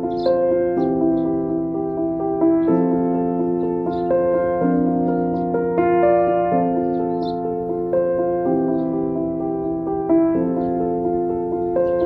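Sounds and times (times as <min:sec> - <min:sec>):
calm keyboard chords: 0:00.0 - 0:12.0.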